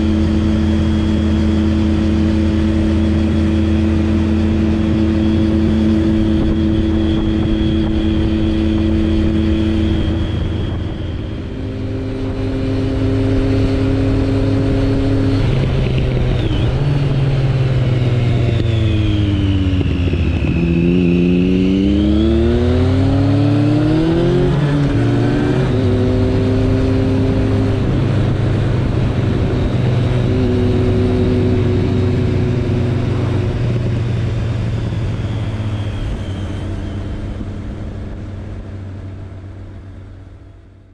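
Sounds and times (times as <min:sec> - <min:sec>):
motorcycle engine cruising: 0:00.0 - 0:40.9
wind and road noise: 0:00.0 - 0:40.9.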